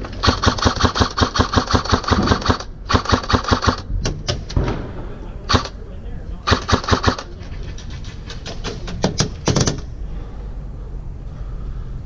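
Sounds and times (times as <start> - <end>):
airsoft rifle firing: 0.0 - 5.8, 6.4 - 7.3, 8.3 - 9.9.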